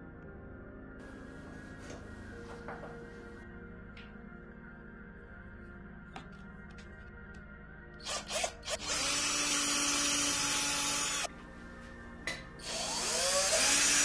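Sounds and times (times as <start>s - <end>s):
cordless drill boring into wood: 8.0s - 11.3s, 12.6s - 14.0s.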